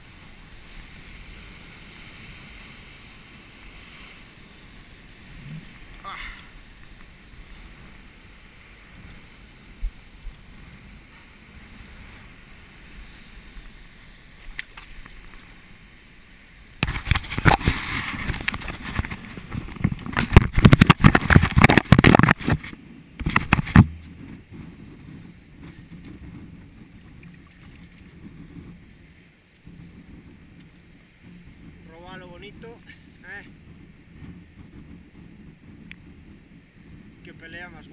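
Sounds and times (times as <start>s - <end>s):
surf: 0.0s - 37.9s
wind: 0.0s - 37.9s
scraping and knocking on microphone: 16.8s - 26.4s.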